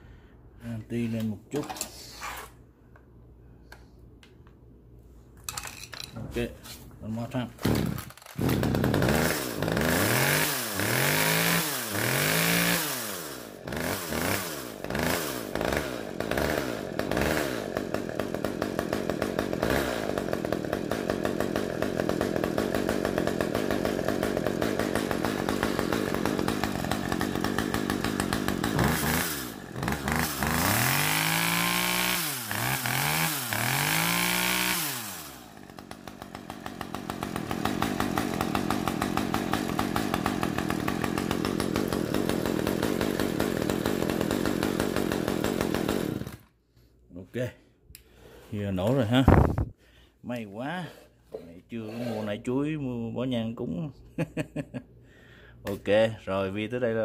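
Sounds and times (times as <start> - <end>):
chainsaw engine revving and idling: 7.1 - 46.5.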